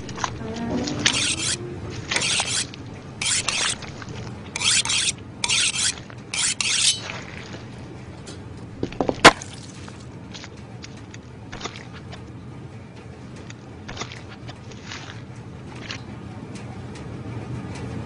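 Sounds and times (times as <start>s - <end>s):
knife scraping on honing steel: 1.0s - 4.0s, 4.6s - 7.2s.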